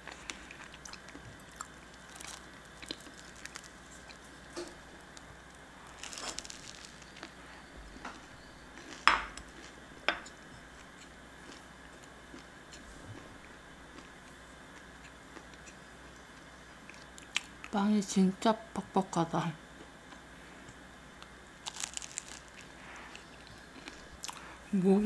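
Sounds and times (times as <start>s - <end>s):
biting bread: 5.8s - 7.4s, 21.6s - 24.4s.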